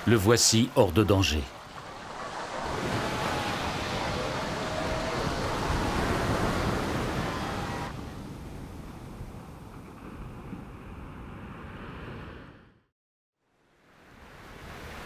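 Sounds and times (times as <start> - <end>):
surf breaking on rocky shore: 0.0 - 8.5
gentle wash of sea: 0.0 - 12.7, 13.4 - 15.0.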